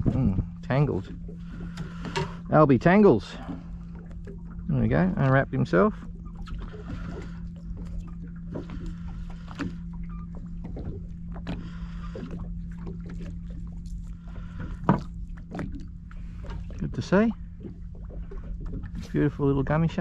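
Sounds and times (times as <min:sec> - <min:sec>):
boat engine idling: 0:00.0 - 0:20.0
wind: 0:00.0 - 0:20.0.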